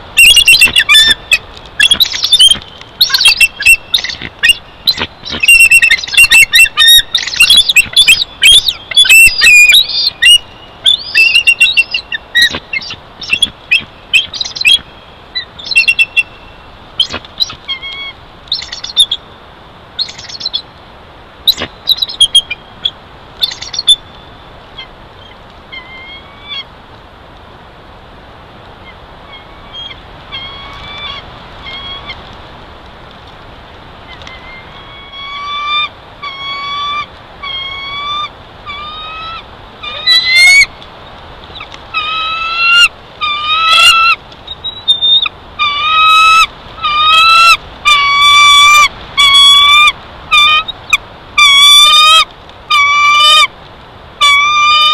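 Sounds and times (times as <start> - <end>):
eagles chirping and chittering: 0.2 - 16.4, 17.0 - 19.2, 21.5 - 22.6, 23.4 - 24.1, 34.1 - 40.7, 41.5 - 53.5.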